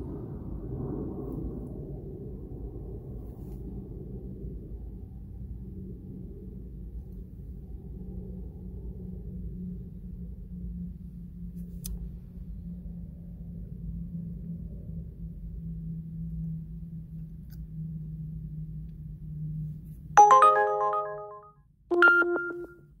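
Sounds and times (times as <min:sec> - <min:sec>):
low hum in vehicle cabin: 0:09.7 - 0:14.5, 0:15.1 - 0:20.0
phone ringtone chime: 0:20.2 - 0:22.8.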